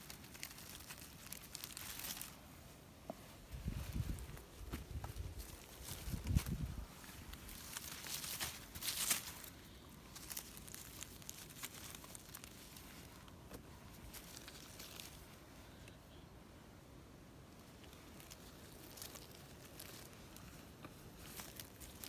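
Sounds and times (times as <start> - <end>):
dry leaves rustling and crackling: 0.0 - 2.6, 3.3 - 15.5, 17.5 - 22.0.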